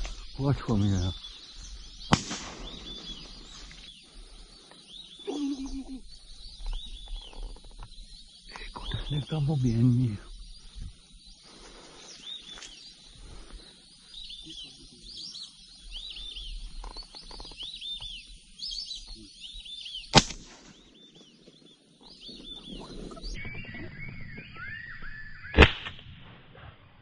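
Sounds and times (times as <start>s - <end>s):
sharp crack: 2.1s - 3.9s, 20.1s - 20.8s, 25.4s - 26.7s
ducks whistling in flight: 22.4s - 25.9s.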